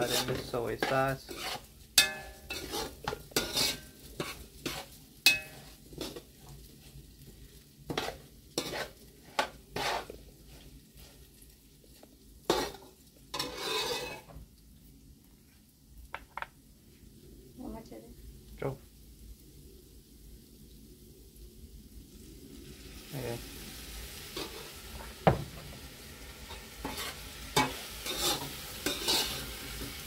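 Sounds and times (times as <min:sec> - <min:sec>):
metal spoon scraping a pot: 0:00.0 - 0:06.3, 0:07.9 - 0:10.1, 0:12.5 - 0:14.3, 0:26.5 - 0:29.9
rice sizzling: 0:00.0 - 0:30.0.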